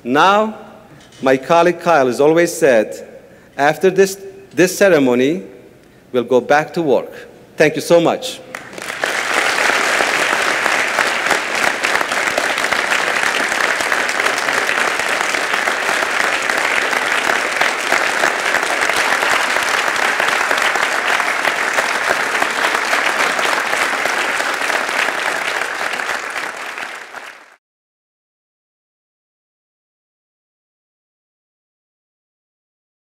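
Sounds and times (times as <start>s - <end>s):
audience applauding: 8.5s - 27.6s.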